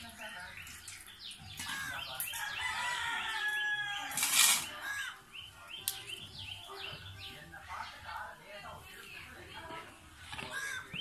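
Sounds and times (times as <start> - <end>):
small birds chirping: 0.0 - 11.0
rooster crowing: 2.4 - 4.2.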